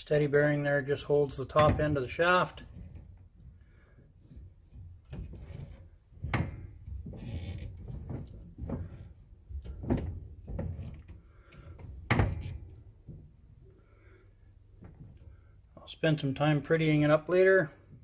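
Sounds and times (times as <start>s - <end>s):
sharp knocks and thumps: 1.5s - 3.2s, 4.9s - 13.3s.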